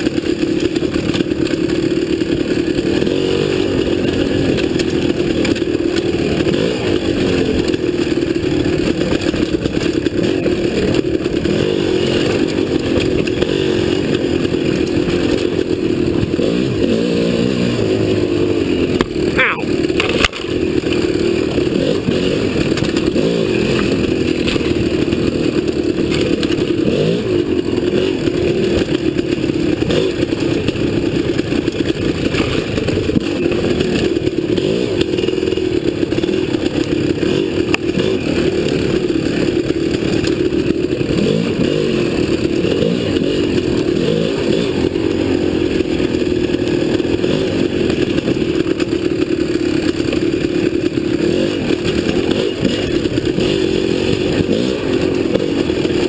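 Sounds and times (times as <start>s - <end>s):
dirt bike engine revving: 0.0s - 56.0s
bike clattering over rocks: 18.9s - 27.1s, 27.9s - 35.3s.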